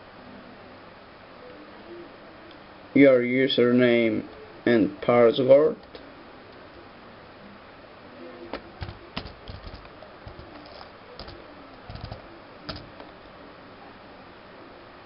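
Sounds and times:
laptop keyboard typing: 8.6s - 13.2s.

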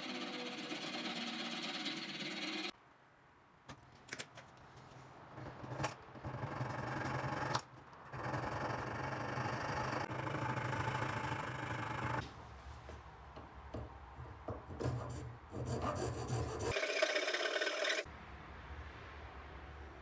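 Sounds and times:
file rasping on metal: 14.8s - 18.1s.

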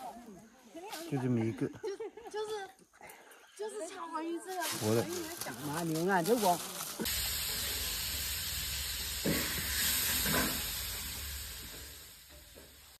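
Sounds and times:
oil sizzling in frying: 5.7s - 13.0s.

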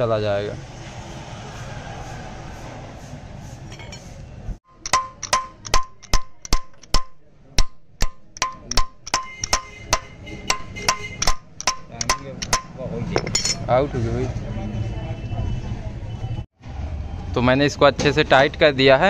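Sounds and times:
hammer striking metal: 4.7s - 13.7s.

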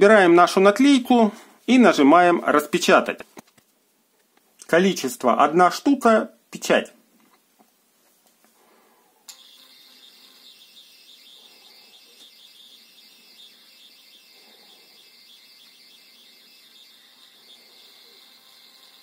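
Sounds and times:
label printer whine: 9.3s - 19.0s.

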